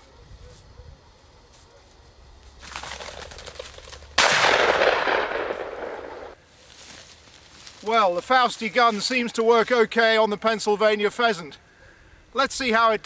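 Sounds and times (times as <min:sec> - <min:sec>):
rising rustle: 0:00.0 - 0:09.8
shotgun report: 0:04.2 - 0:06.4.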